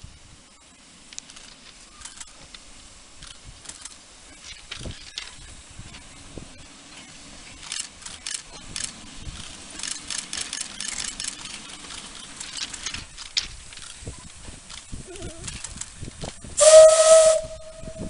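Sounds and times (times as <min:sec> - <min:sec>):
train wheels clattering on track: 0:07.6 - 0:14.9.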